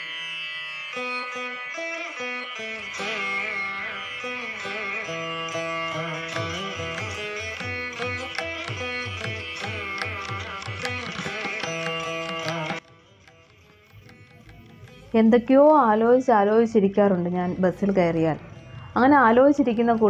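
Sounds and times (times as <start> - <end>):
plucked string melody: 2.7 - 16.1.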